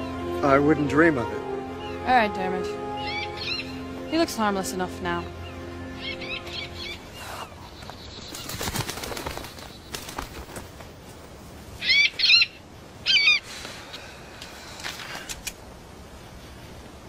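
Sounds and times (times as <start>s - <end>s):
hawk wings flapping: 7.8s - 11.4s
hawk high-pitched cries: 11.8s - 13.4s.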